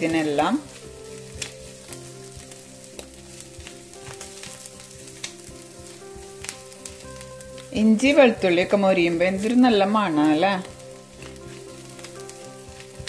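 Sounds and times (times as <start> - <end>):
garlic sizzling in oil: 0.0 - 13.0
spatula scraping and tapping pan: 0.2 - 7.8.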